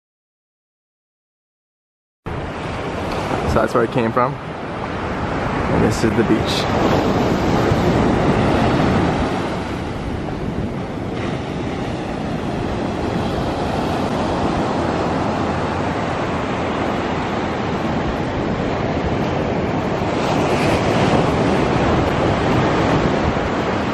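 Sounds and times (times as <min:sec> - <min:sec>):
surf washing up beach: 0:02.3 - 0:23.9
wind on microphone: 0:02.3 - 0:23.9.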